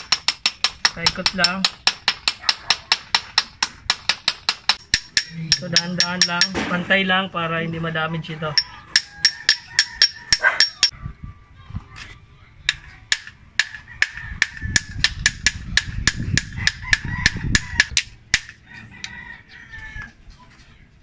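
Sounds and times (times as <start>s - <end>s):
hammer tapping metal: 0.0s - 6.7s, 8.6s - 10.9s.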